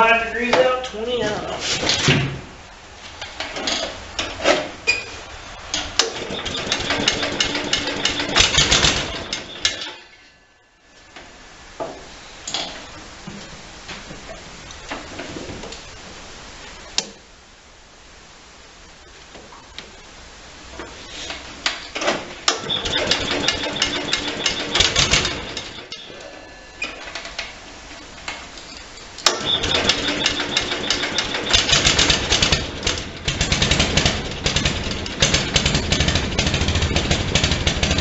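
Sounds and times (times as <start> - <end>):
single-cylinder engine starting: 5.7 - 10.1, 22.0 - 28.4, 29.2 - 38.0.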